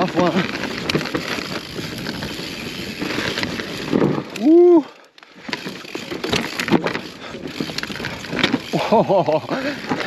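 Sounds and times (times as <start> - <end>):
bike tyres rattling over gravel: 0.0 - 10.0
person exclaiming: 4.4 - 5.0.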